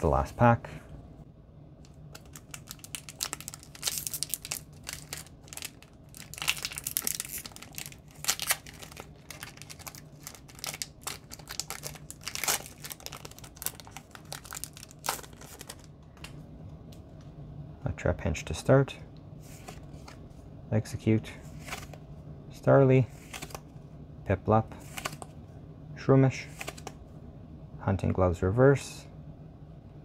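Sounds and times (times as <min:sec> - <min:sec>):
foil wrapper crinkling and tearing: 0:02.1 - 0:15.9.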